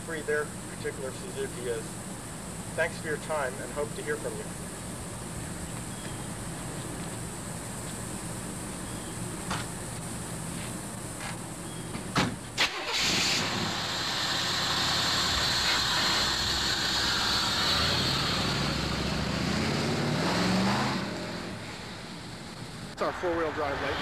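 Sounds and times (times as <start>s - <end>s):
car engine starting and running: 12.5s - 24.0s.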